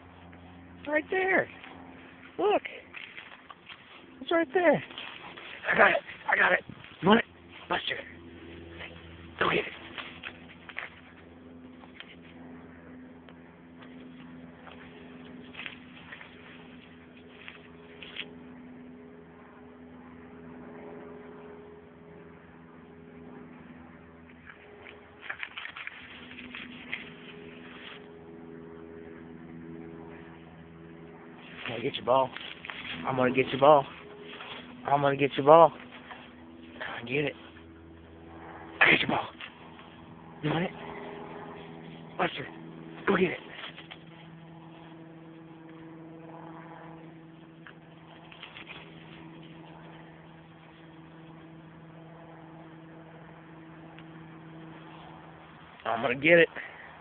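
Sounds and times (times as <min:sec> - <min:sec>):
dry leaves rustling: 0:00.0 - 0:19.0, 0:23.6 - 0:57.0
steady low hum: 0:00.0 - 0:57.0.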